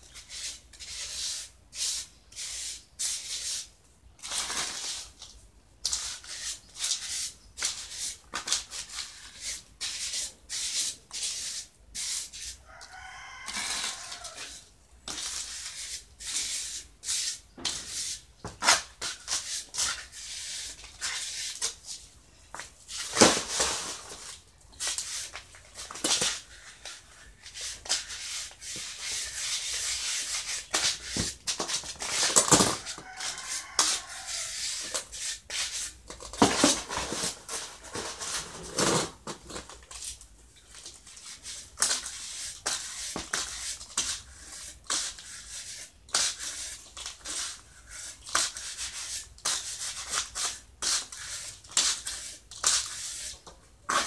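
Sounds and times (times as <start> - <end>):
trowel scraping wet cement: 0.1 - 5.1, 5.8 - 12.6, 13.5 - 22.0, 22.9 - 39.7, 41.0 - 54.0
rooster crowing: 12.6 - 14.6, 32.7 - 34.7.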